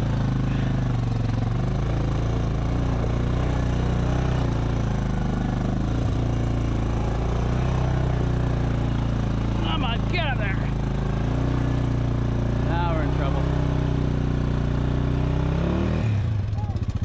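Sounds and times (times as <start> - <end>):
quad bike engine at low revs: 0.0 - 17.0.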